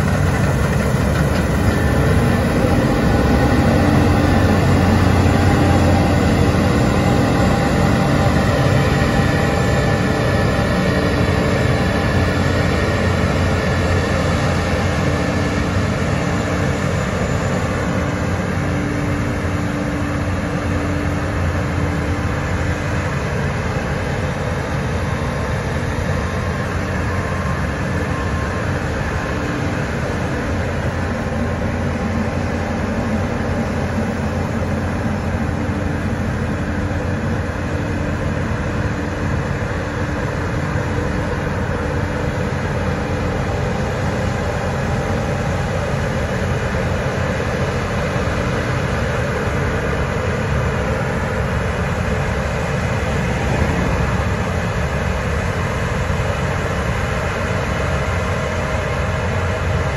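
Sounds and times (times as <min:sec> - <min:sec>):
combine harvester engine droning: 0:00.0 - 0:59.9.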